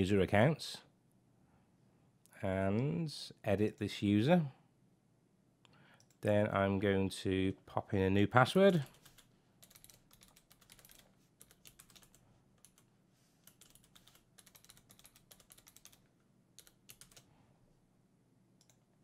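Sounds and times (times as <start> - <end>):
computer keyboard typing: 8.8 - 17.3, 18.6 - 18.8.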